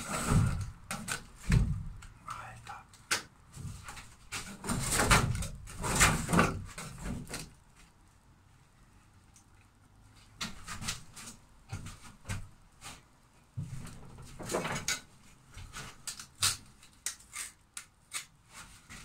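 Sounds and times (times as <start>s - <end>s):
hand tool scraping panel: 0.0s - 1.6s.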